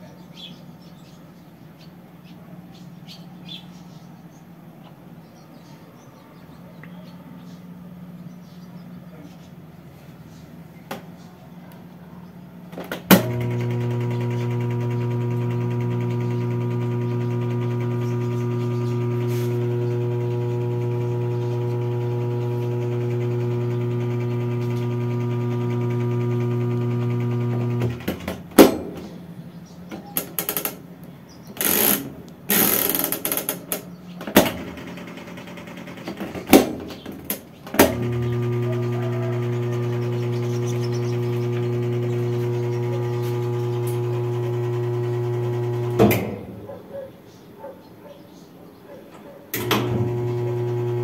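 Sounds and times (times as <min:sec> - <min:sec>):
washing machine humming: 0:12.5 - 0:29.0, 0:31.6 - 0:47.1, 0:49.2 - 0:51.0.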